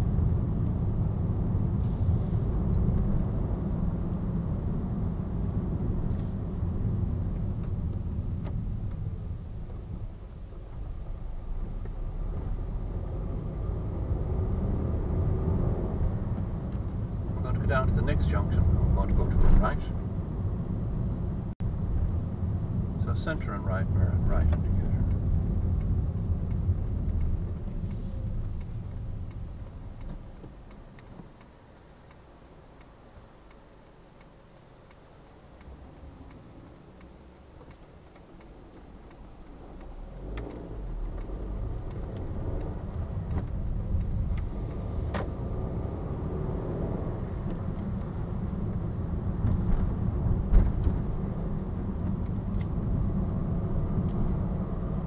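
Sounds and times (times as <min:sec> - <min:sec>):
car engine and tyre noise: 0:00.0 - 0:55.0
turn indicator ticking: 0:07.1 - 0:13.5, 0:23.1 - 0:50.1.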